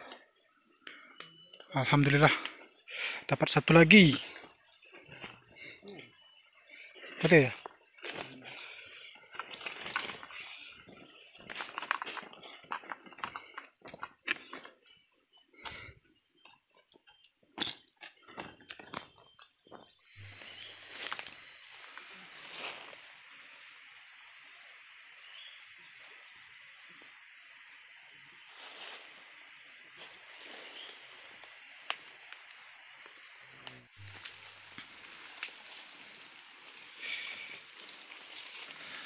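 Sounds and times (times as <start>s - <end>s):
forest insects droning: 0.0s - 39.0s
leaf litter and twigs snapping: 8.0s - 10.6s, 20.3s - 23.0s, 30.0s - 39.0s.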